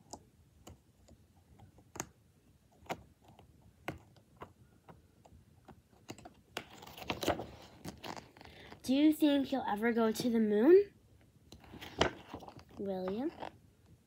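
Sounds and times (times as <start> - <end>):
book pages clicking: 2.8 - 8.5
page turning rustle: 6.1 - 8.8, 11.5 - 13.4.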